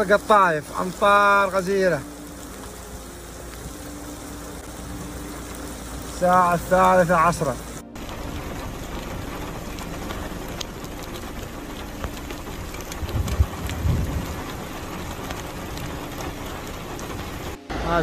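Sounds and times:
floodwater running over ground: 0:00.0 - 0:17.6
heavy rain falling: 0:00.0 - 0:18.0
dull low thumps: 0:12.0 - 0:14.5.

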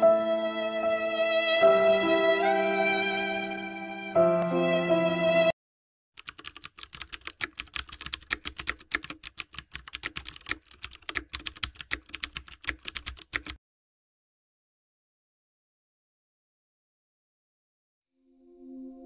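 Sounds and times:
computer keyboard typing: 0:06.2 - 0:13.6.

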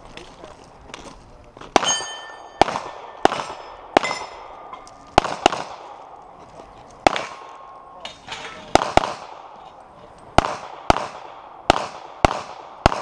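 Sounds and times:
pistol shots: 0:01.7 - 0:06.2, 0:07.0 - 0:09.6, 0:10.3 - 0:13.0
steel target ringing: 0:01.8 - 0:02.7, 0:03.4 - 0:04.8.

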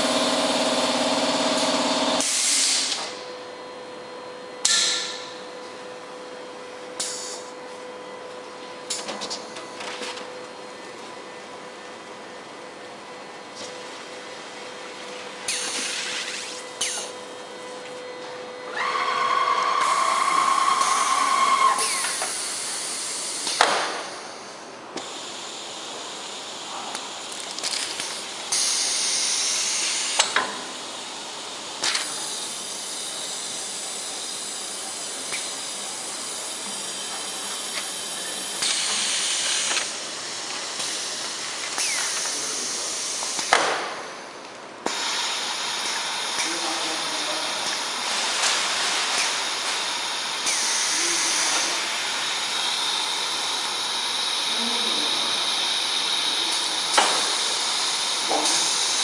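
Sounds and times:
whining tone: 0:18.6 - 0:22.3
machine hissing: 0:18.8 - 0:24.5, 0:44.9 - 0:59.0.

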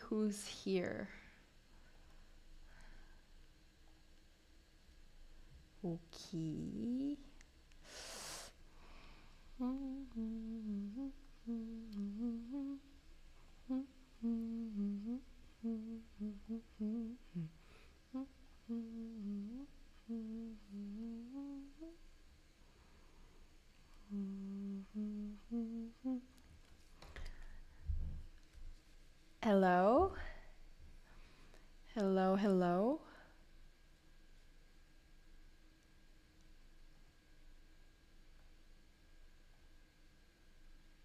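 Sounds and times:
woman humming: 0:05.8 - 0:08.5, 0:09.6 - 0:22.0, 0:24.0 - 0:26.4.

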